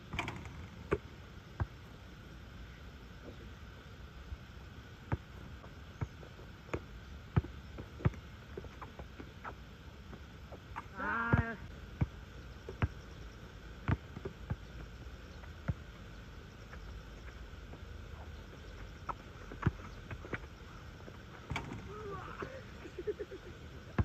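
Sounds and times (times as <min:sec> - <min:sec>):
basketball bouncing on asphalt: 0:05.1 - 0:10.6, 0:11.2 - 0:16.0, 0:16.6 - 0:20.6.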